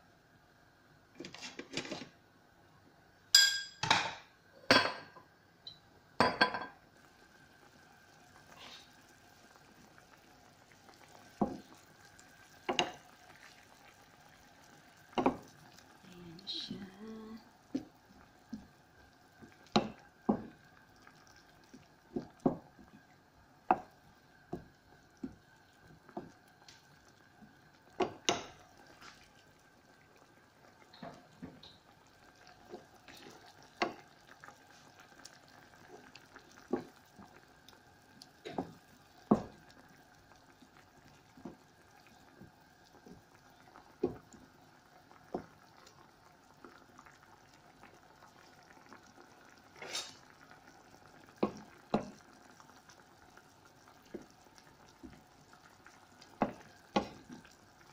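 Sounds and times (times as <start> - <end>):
faint steady hum: 0.0 - 49.7
wooden spatula scraping a pan: 49.8 - 50.2.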